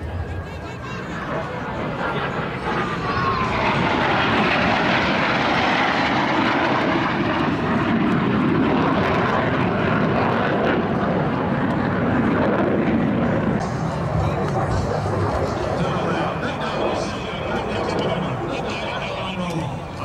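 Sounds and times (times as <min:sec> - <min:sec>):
falling jet whine: 0:00.0 - 0:20.0
jet engine roar: 0:00.0 - 0:20.0.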